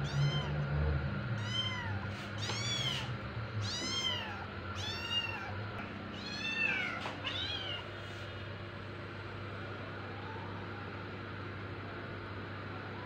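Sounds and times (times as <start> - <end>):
kittens meowing: 0.0 - 0.6, 1.4 - 7.9
steady low hum: 0.0 - 13.0.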